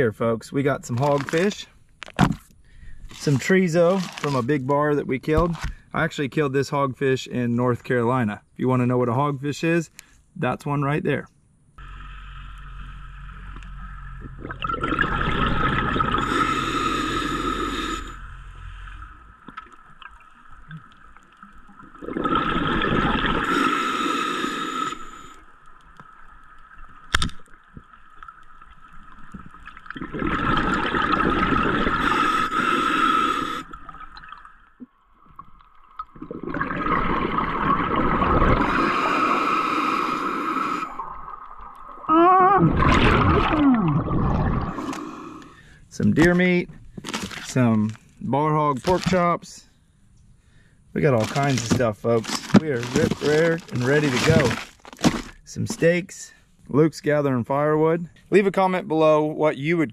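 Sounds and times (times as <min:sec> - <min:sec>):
regulator bubbles underwater: 0:13.3 - 0:17.0, 0:19.0 - 0:23.7, 0:25.1 - 0:32.7, 0:33.6 - 0:39.4, 0:40.7 - 0:45.0.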